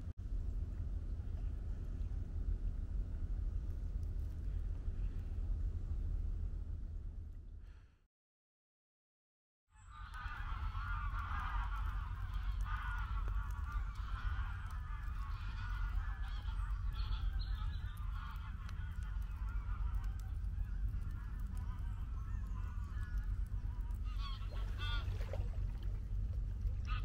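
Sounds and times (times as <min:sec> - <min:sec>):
steady low rumble: 0:00.0 - 0:08.0, 0:09.8 - 0:27.0
geese honking: 0:09.9 - 0:25.6.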